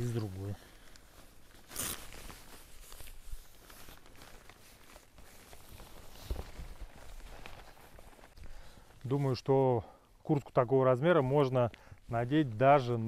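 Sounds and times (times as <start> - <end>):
rain suit fabric rustling: 0.0 - 9.4.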